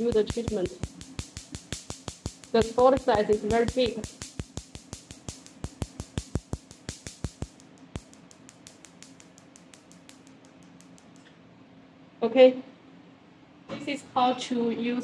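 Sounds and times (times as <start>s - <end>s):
laser pulses snapping: 0.0s - 11.2s
faint steady hum: 0.0s - 15.0s.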